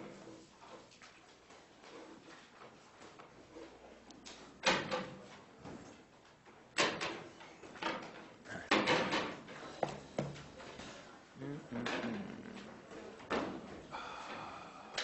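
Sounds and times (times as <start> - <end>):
faint murmuring: 10.7 - 13.2.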